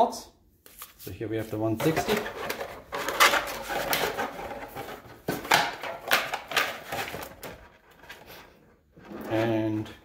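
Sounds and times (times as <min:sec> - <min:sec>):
paper cards rustling and scraping: 0:00.7 - 0:08.6.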